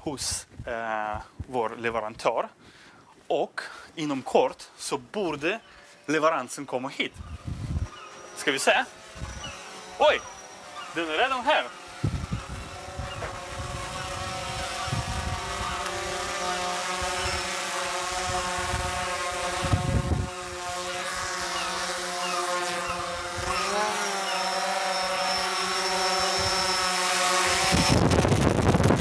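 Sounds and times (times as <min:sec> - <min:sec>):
drone propellers buzzing: 0:07.0 - 0:29.0.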